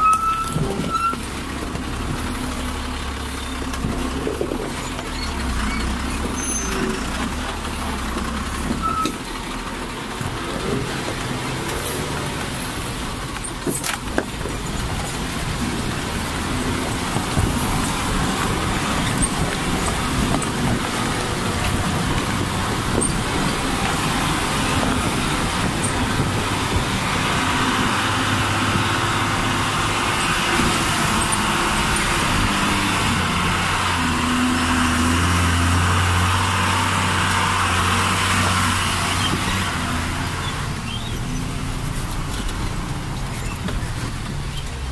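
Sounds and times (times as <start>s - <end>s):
truck engine running: 0.0s - 44.9s
tyres rolling over gravel: 0.0s - 44.9s.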